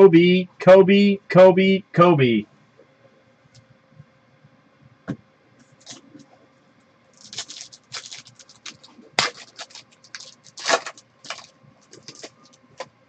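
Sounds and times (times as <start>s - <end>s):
foil card pack crinkling: 7.1s - 12.9s.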